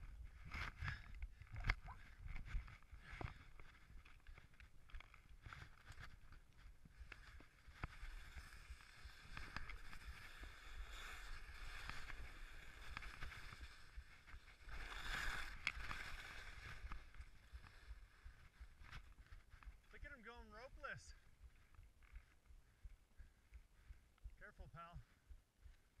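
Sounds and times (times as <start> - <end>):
skis scraping on snow: 6.9 - 18.8.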